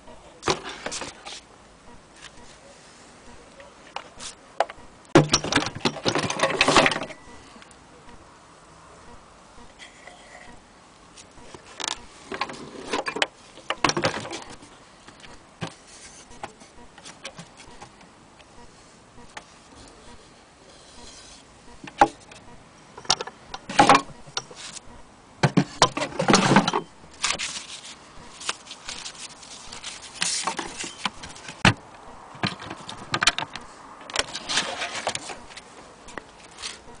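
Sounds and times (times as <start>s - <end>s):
handling knocks and rustles: 3.9s - 7.2s, 25.4s - 31.8s.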